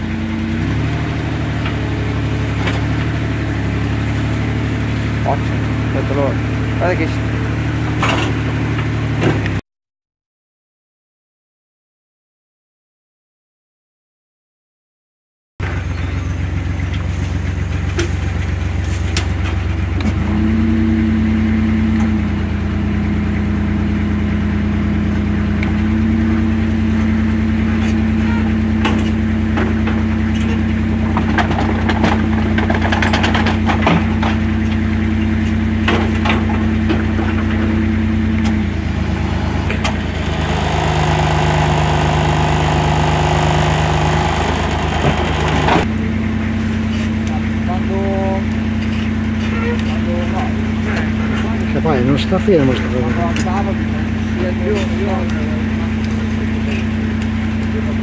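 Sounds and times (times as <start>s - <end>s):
engine running: 0.0s - 9.6s, 15.6s - 58.0s
knocks and clatters: 28.8s - 34.8s.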